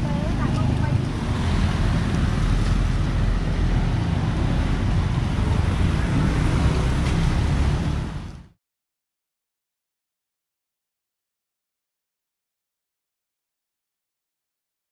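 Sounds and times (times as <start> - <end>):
wind buffeting microphone: 0.0 - 8.5
outdoor street noise: 0.0 - 8.6.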